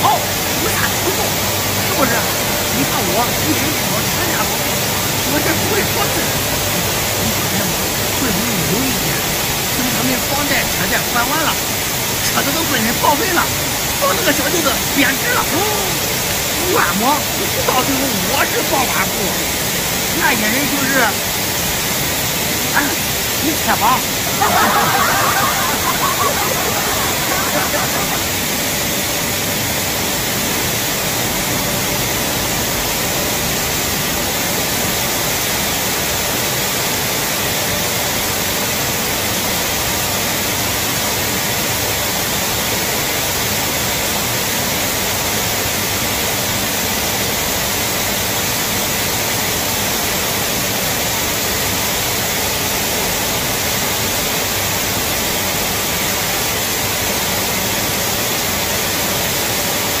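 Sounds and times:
faint hum: 0:00.0 - 0:36.6.

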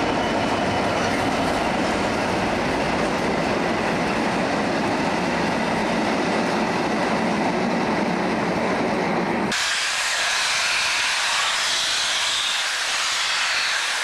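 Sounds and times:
train wheels rumbling on rail: 0:00.0 - 0:14.0
steam locomotive hissing steam: 0:09.5 - 0:14.0.

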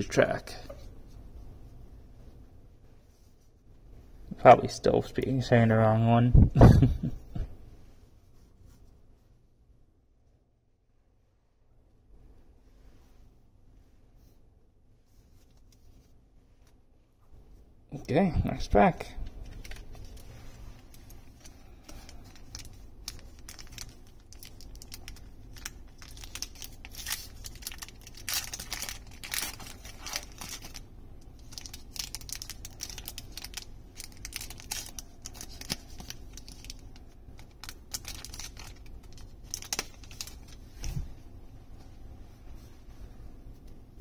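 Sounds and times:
foil wrapper crinkling and tearing: 0:19.4 - 0:40.6.

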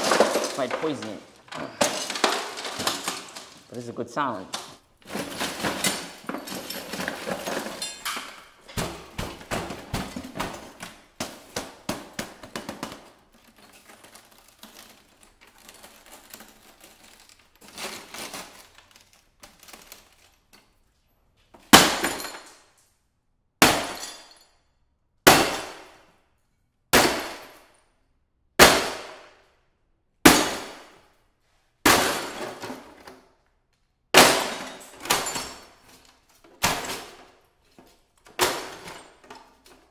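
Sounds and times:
sledgehammer smashing television: 0:00.0 - 0:03.7, 0:05.0 - 0:08.1, 0:08.7 - 0:13.1, 0:21.7 - 0:22.5, 0:23.6 - 0:24.3, 0:25.3 - 0:25.9, 0:26.9 - 0:27.6, 0:28.6 - 0:29.2, 0:30.3 - 0:30.9, 0:31.8 - 0:33.0, 0:34.1 - 0:35.8, 0:36.6 - 0:37.3, 0:38.3 - 0:39.3
rattling glass and plastic: 0:00.0 - 0:03.8, 0:04.5 - 0:11.1
broken glass clattering: 0:00.0 - 0:03.9, 0:04.5 - 0:20.5, 0:21.7 - 0:22.8, 0:23.6 - 0:24.5, 0:31.9 - 0:33.0, 0:34.2 - 0:37.4.

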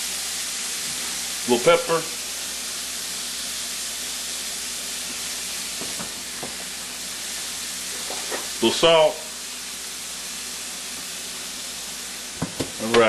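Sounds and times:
onion and garlic sizzling in oil: 0:00.0 - 0:13.0.

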